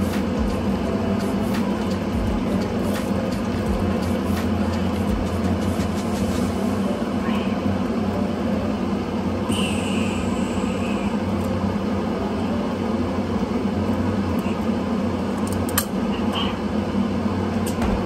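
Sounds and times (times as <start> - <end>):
appliance motor humming: 0.0 - 18.0.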